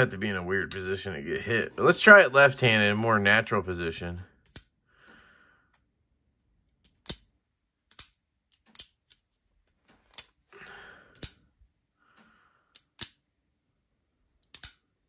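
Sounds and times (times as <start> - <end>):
folding knife metallic clicks: 6.8 - 7.3, 7.9 - 9.3, 10.1 - 10.4, 11.2 - 11.5, 12.7 - 13.2, 14.4 - 15.0.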